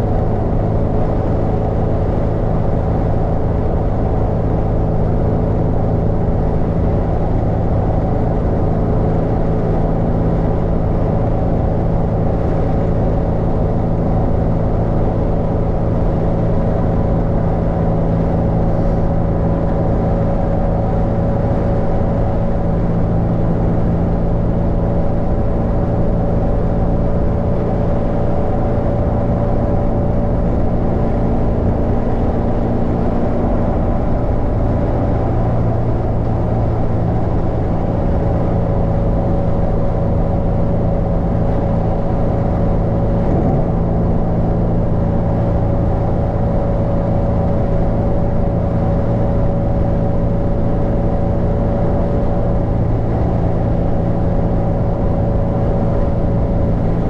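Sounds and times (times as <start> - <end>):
low engine hum: 0.0 - 57.0
tyre and road noise: 41.8 - 46.3
faint rising whine: 42.1 - 45.9.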